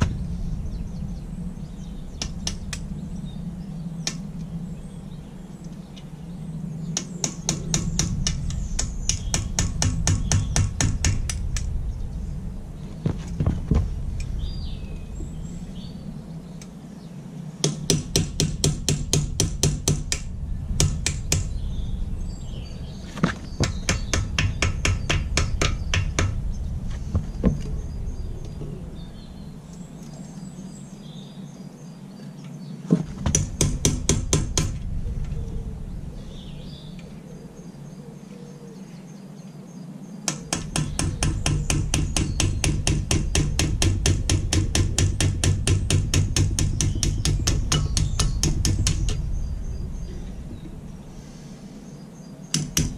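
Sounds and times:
hammer striking iron frame: 0:07.2 - 0:11.7, 0:17.7 - 0:21.6, 0:23.6 - 0:26.4, 0:33.3 - 0:34.8, 0:40.3 - 0:49.2, 0:52.6 - 0:52.9.

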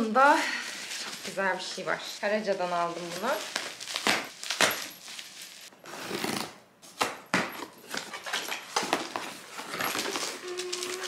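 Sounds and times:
paper packing rustling: 0:00.5 - 0:05.7, 0:07.8 - 0:11.0.

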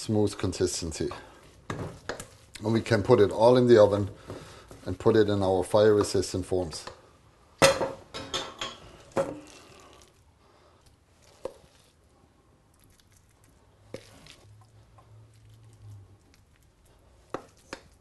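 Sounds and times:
spoon scooping and patting stuffing: 0:00.3 - 0:07.0, 0:09.0 - 0:18.0.

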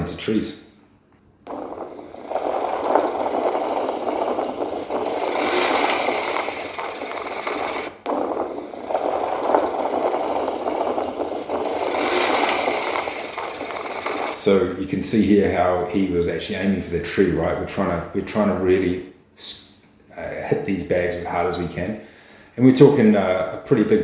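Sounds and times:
branches scraping motorcycle: 0:01.5 - 0:14.7.

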